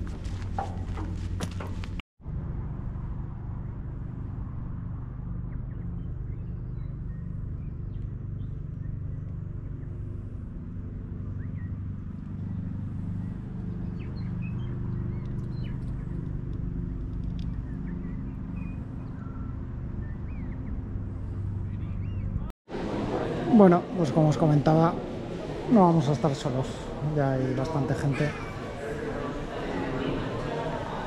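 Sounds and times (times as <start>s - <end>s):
engine idling hum: 0.0s - 22.5s.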